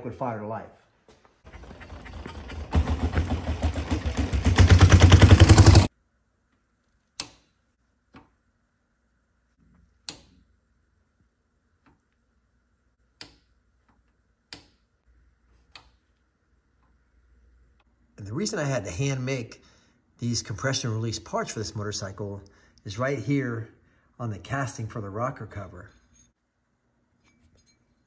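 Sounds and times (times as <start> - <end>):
motorcycle engine exhaust beats: 1.6 - 5.9.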